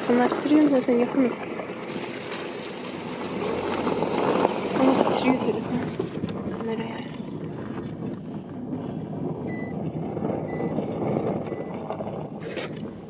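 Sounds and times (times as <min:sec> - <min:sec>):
vehicle engine rumbling: 0:00.0 - 0:13.0
short high beeps: 0:09.5 - 0:09.7.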